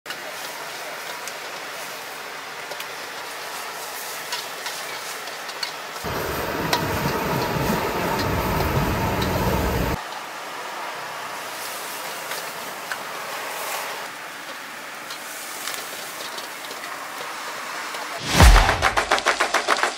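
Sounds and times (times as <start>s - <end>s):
low rushing roar: 6.1s - 10.0s, 18.2s - 19.4s.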